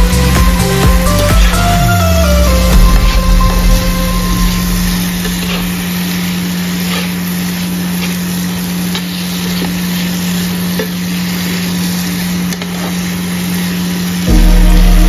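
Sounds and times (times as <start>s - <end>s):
low hum: 0.0s - 6.8s, 14.3s - 15.0s
food sizzling in a frying pan: 3.6s - 15.0s.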